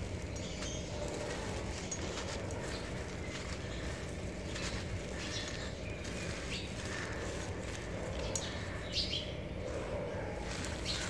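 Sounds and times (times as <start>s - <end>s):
hands crushing dry lumps: 0.0s - 9.0s, 9.7s - 11.0s.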